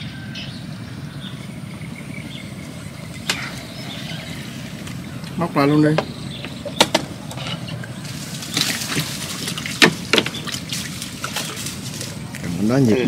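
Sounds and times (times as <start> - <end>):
water splashing and trickling: 1.7 - 13.0
short sharp splashes: 8.1 - 12.3.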